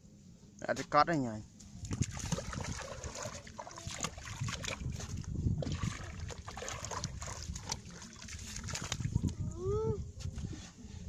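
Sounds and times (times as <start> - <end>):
water sloshing and splashing: 1.8 - 9.4.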